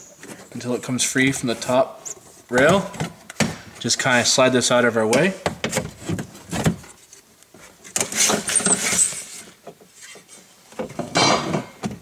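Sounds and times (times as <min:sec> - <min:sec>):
scraping rustles: 0:05.6 - 0:10.7.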